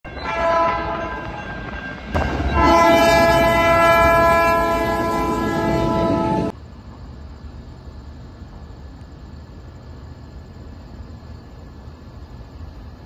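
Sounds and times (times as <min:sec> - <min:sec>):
train horn chords: 0:00.1 - 0:01.5, 0:02.2 - 0:06.5.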